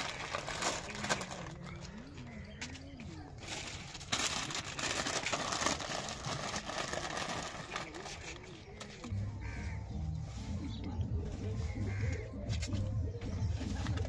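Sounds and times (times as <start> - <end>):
plastic packets rustling: 0.0 - 9.6.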